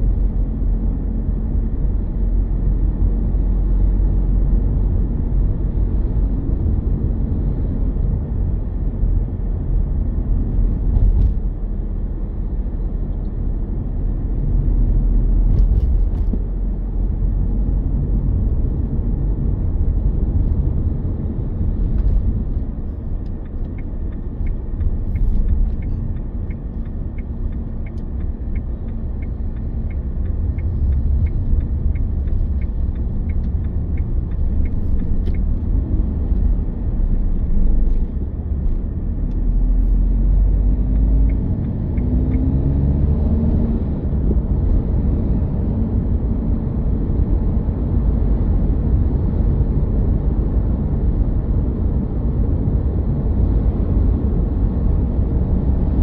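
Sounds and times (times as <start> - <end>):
car engine and tyres rumbling: 0.0 - 56.0
light regular ticking: 23.1 - 35.7.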